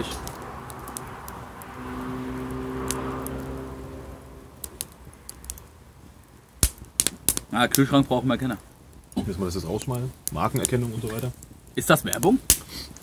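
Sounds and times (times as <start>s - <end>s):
distant vehicle engine hum: 0.0s - 6.5s.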